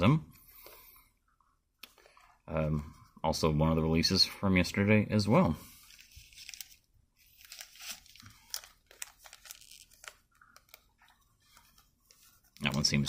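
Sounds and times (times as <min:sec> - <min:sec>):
trading cards rustling: 0:05.7 - 0:13.0.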